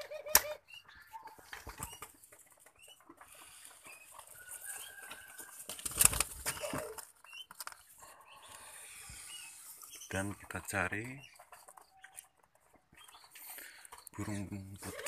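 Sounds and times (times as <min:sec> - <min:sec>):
dove flapping wings: 0:05.6 - 0:07.1.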